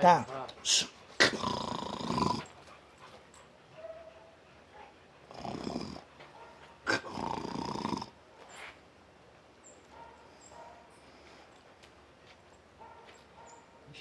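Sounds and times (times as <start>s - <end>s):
dogs growling and snarling: 1.1s - 3.1s, 5.2s - 6.2s, 6.8s - 8.3s.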